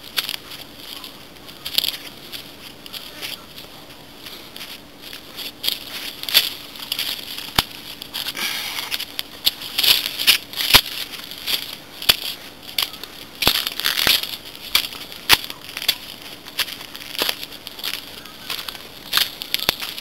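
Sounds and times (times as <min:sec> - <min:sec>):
faint steady hum: 0:00.0 - 0:20.0
footsteps crunching on leaves: 0:00.0 - 0:20.0.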